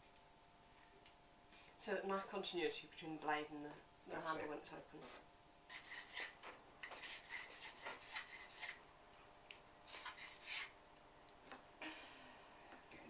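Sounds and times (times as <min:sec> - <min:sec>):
hand file rasping acrylic: 0:05.7 - 0:08.8, 0:09.9 - 0:10.7.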